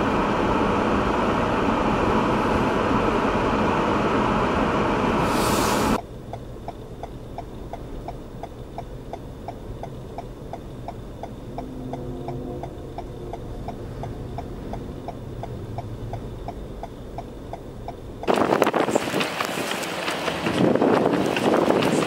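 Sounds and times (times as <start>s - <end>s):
low engine hum: 0.0s - 22.0s
hazard light flasher ticking: 6.0s - 18.3s.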